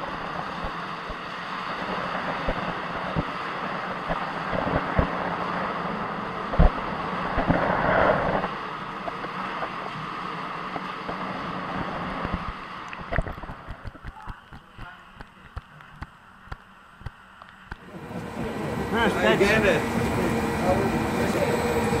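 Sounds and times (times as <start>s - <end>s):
water rushing and churning: 0.0s - 15.8s.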